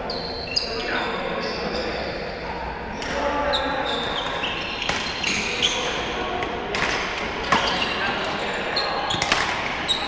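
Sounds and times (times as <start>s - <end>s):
sneakers squeaking on wooden floor: 0.0s - 2.0s, 3.4s - 6.1s, 7.4s - 10.0s
racket hitting shuttlecock: 6.7s - 7.8s, 9.2s - 9.8s.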